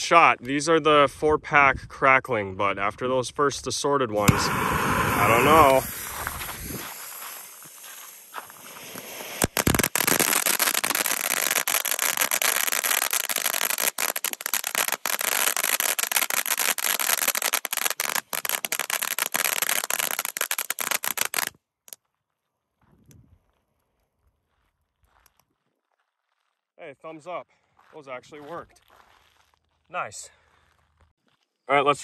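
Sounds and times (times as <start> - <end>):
crackling fountain firework: 4.2 - 21.5.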